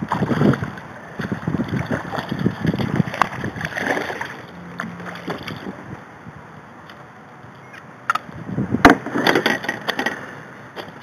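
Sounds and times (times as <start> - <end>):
fish thrashing and splashing: 0.0 - 5.9.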